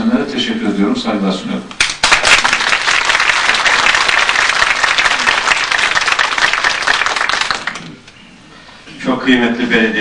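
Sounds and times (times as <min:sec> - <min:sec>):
audience applauding: 0:01.8 - 0:08.0.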